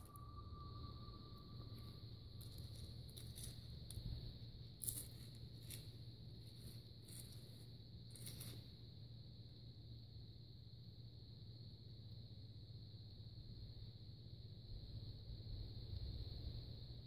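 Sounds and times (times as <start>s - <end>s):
high-pitched drone: 0.0s - 2.8s.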